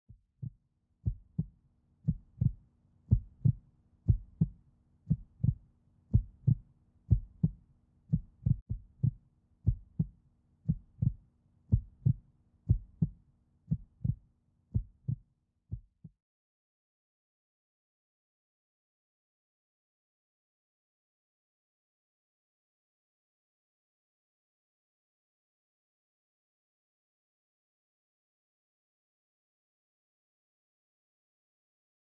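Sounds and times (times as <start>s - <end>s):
heartbeat thumps: 0.3s - 1.5s, 2.1s - 10.1s, 10.7s - 14.2s, 14.8s - 16.1s.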